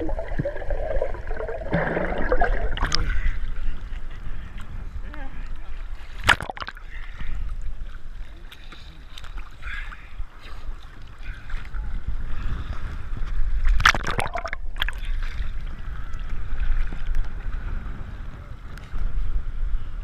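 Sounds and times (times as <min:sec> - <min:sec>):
wind on microphone: 0:11.2 - 0:20.0.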